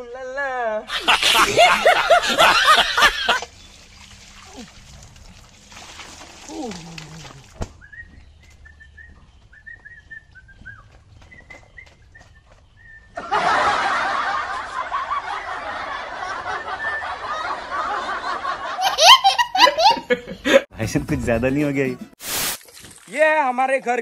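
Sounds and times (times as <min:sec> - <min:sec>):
bird chirping: 0:07.8 - 0:13.2.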